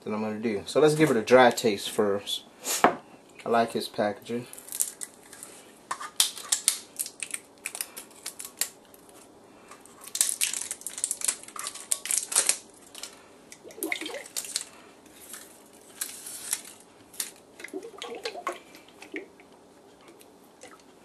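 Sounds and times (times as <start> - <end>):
plastic shrink-wrap tearing crinkles: 4.5 - 5.6, 6.2 - 9.3, 9.9 - 13.2, 14.1 - 17.5.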